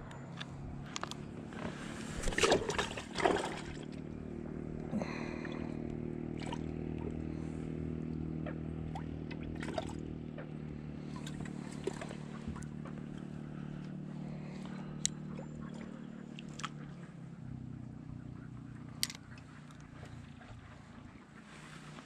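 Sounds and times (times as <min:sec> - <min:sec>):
low mechanical hum: 0:00.0 - 0:22.0
water splashing: 0:01.7 - 0:04.0, 0:09.3 - 0:10.0, 0:11.0 - 0:12.7.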